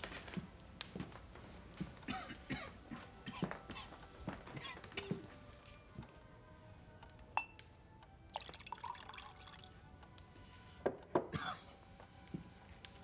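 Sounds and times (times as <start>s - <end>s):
glass clinking: 7.4s - 7.6s, 8.3s - 9.8s
liquid pouring into glass: 8.3s - 9.8s.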